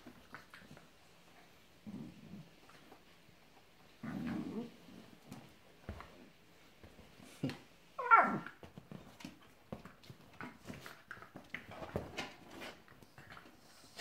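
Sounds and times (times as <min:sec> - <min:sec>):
dog yelping: 0:08.0 - 0:08.5.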